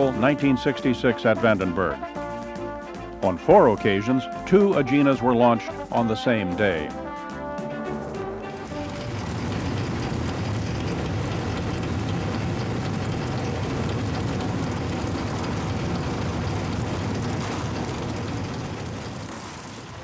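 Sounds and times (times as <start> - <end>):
low machinery rumble: 8.0 - 20.0.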